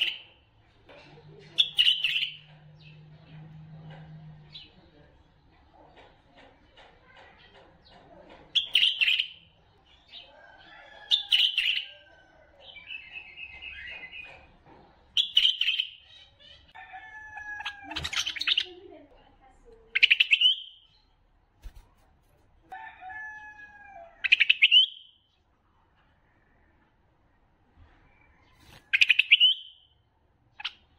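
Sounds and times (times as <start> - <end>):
bulbuls chattering: 0.0 - 21.2
bird trill: 15.2 - 16.7, 20.0 - 21.0, 24.2 - 25.2, 28.9 - 29.9.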